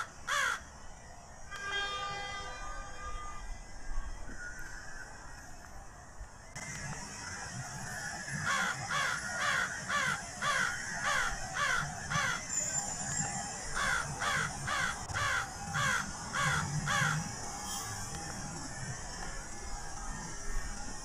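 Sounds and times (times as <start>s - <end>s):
crows cawing: 0.0s - 0.6s, 8.3s - 12.5s, 13.8s - 17.3s.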